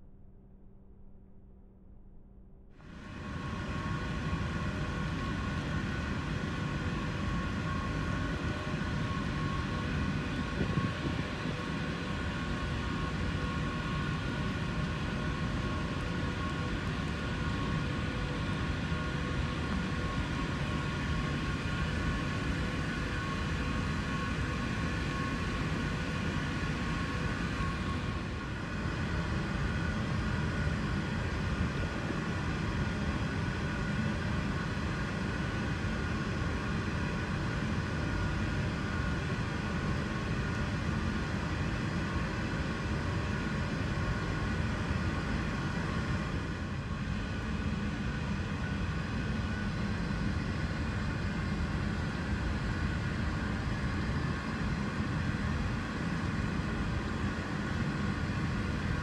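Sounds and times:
machinery low rumble: 0.0s - 35.4s.

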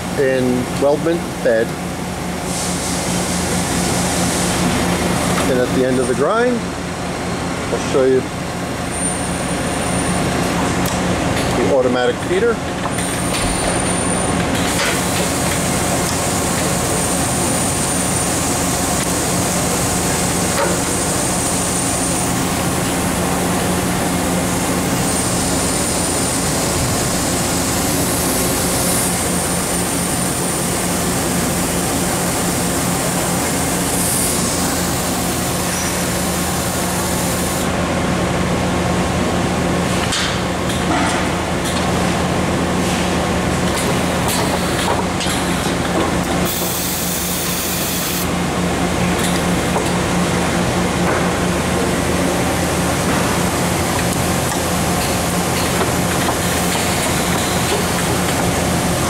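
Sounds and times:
coolant spray: 46.4s - 48.3s
air hisses: 46.5s - 48.3s.

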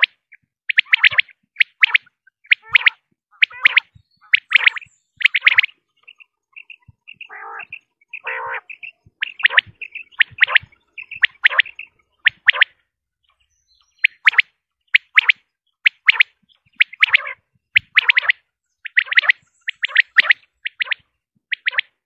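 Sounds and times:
quail calling: 0.0s - 22.0s
rough low bird notes: 3.5s - 14.3s.

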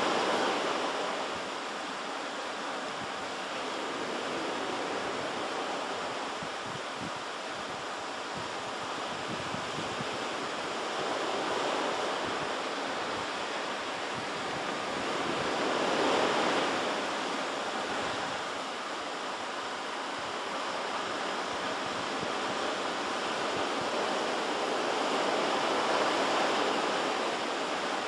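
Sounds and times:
surf washing against coast: 0.0s - 28.0s.

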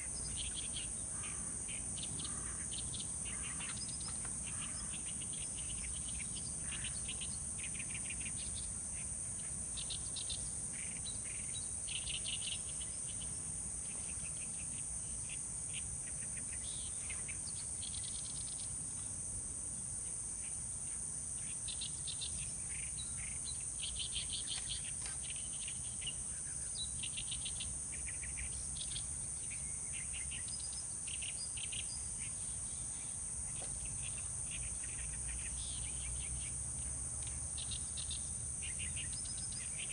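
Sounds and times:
insect trilling and chirping: 0.0s - 39.9s.

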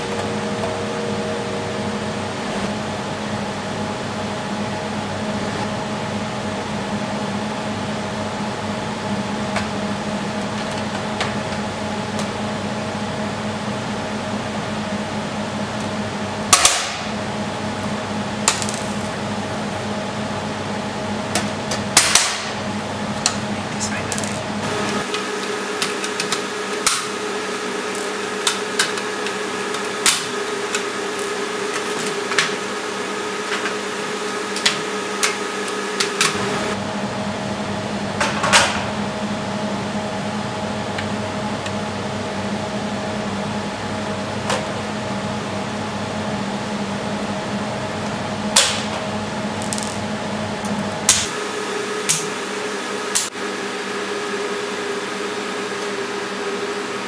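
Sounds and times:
machinery humming: 0.0s - 57.0s.

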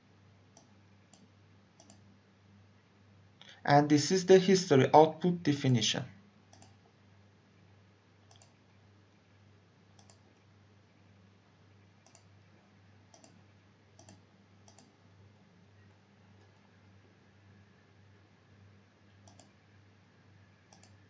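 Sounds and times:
low steady hum: 0.0s - 21.0s
computer mouse clicks: 0.5s - 2.1s, 6.5s - 6.9s, 8.2s - 8.6s, 10.0s - 10.3s, 12.0s - 12.3s, 13.1s - 13.4s, 14.0s - 15.0s, 19.2s - 19.6s, 20.7s - 21.0s.

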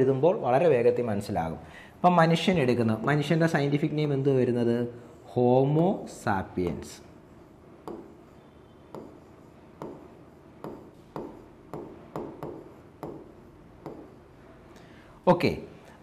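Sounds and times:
stylus tapping on glass screen: 7.8s - 8.1s, 9.8s - 14.2s.

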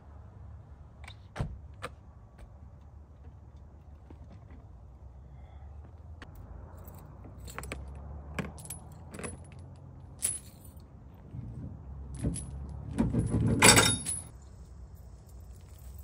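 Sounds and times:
jangling clatter: 12.1s - 14.4s, 15.0s - 16.0s.

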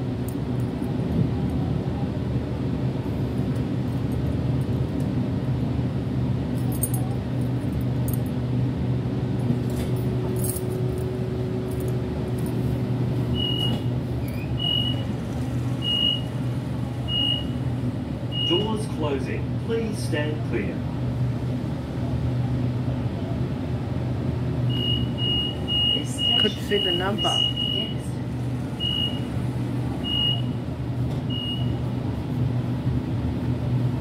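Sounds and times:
train interior hum: 0.0s - 34.0s
door warning beep: 13.3s - 15.1s, 15.8s - 16.3s, 17.1s - 17.6s, 18.3s - 18.7s, 24.7s - 28.0s, 28.8s - 29.3s, 30.0s - 30.6s, 31.3s - 31.8s.

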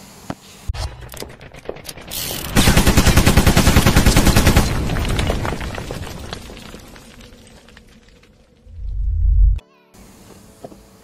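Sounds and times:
rapid machine-gun fire: 0.8s - 5.2s.

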